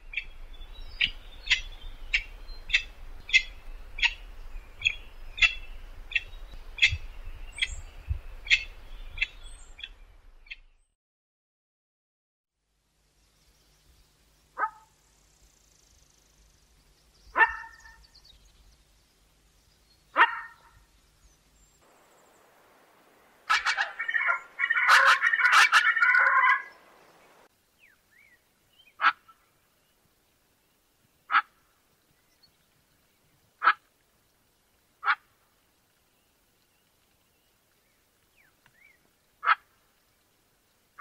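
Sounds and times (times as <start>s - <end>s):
pheasant calling: 0.0s - 10.7s, 17.1s - 18.7s, 19.7s - 29.5s, 31.3s - 31.6s, 38.4s - 39.8s.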